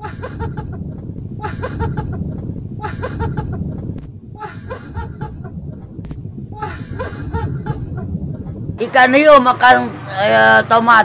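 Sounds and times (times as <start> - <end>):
laughter-like voice bursts: 0.0 - 3.8, 4.4 - 5.6, 6.6 - 8.1
low rumble: 0.0 - 10.1.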